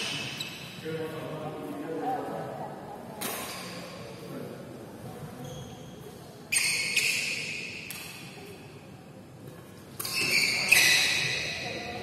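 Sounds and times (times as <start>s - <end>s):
rackets hitting shuttlecock: 3.2s - 3.9s, 7.0s - 8.6s, 9.9s - 11.5s.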